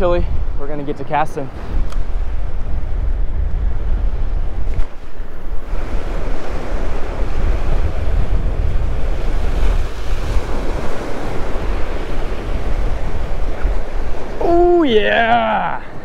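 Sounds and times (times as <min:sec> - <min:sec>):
wind buffeting microphone: 0:00.0 - 0:16.0
waves washing against rocks: 0:04.9 - 0:16.0.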